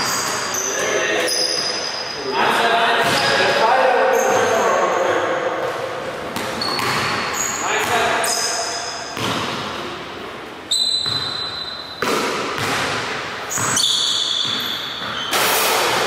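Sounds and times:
sneakers squeaking: 0:00.0 - 0:16.0
basketball bouncing on wooden floor: 0:06.4 - 0:08.0, 0:11.0 - 0:11.4, 0:12.0 - 0:15.3.

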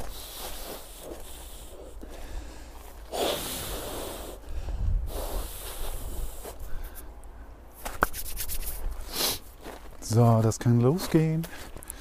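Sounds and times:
man breathing loudly: 0:00.0 - 0:07.6
wind rumble on microphone: 0:03.5 - 0:07.0.

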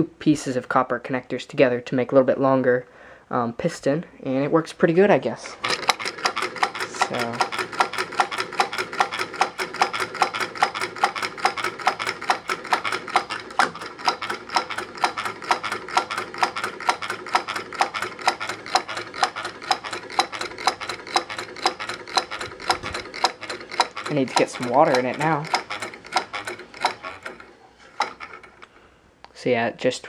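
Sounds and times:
stirling engine ticking: 0:05.6 - 0:28.6.

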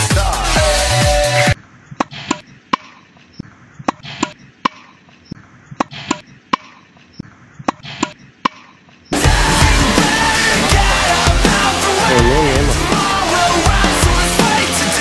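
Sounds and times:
burst of music: 0:09.2 - 0:15.0.

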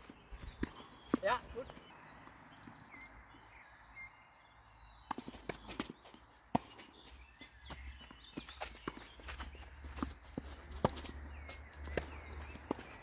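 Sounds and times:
footsteps on clay court: 0:00.0 - 0:02.4, 0:05.0 - 0:13.0
faint birdsong: 0:00.0 - 0:13.0.

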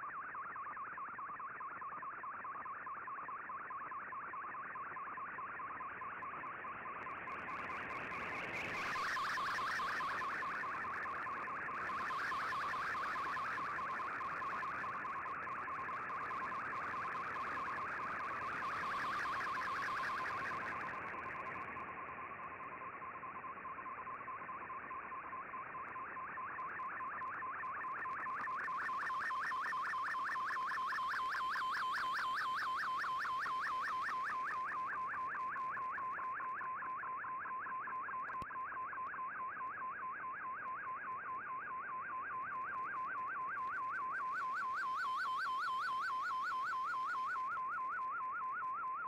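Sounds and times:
warbling radio data tone: 0:06.8 - 0:38.0, 0:42.1 - 0:49.0.

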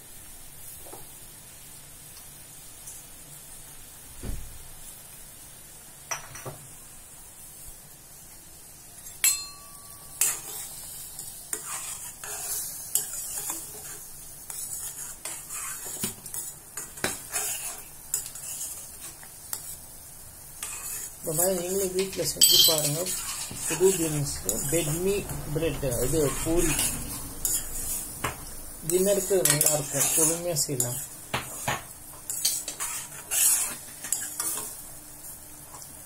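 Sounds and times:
metal ladle scraping a pan: 0:09.8 - 0:19.8, 0:20.6 - 0:34.8.

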